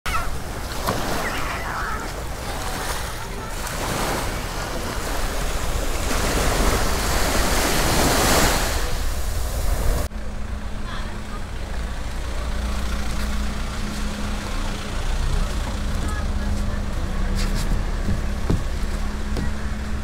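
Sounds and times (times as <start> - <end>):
sea waves washing onto beach: 0.1 - 10.1
wind rumbling on microphone: 1.9 - 10.1.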